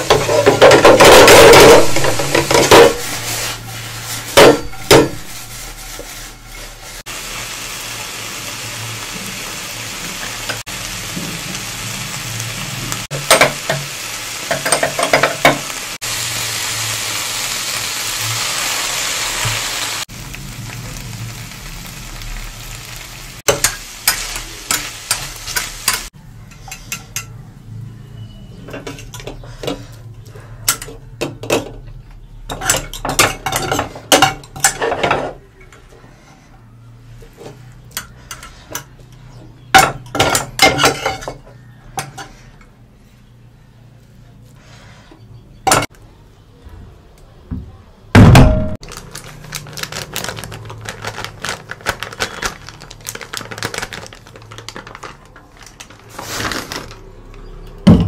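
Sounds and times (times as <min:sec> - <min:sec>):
faint sizzle: 0:02.9 - 0:29.0
heavy thud: 0:48.2 - 0:48.8.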